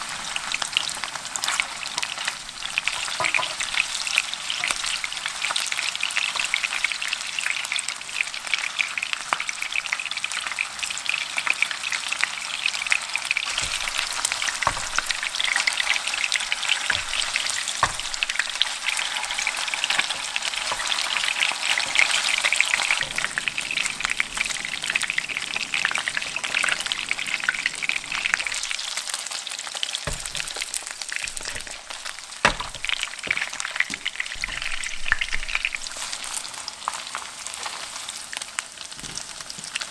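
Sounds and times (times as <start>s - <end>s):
meatballs sizzling in oil: 0.0s - 39.9s
wooden spatula knocking: 13.5s - 23.3s, 30.1s - 36.3s.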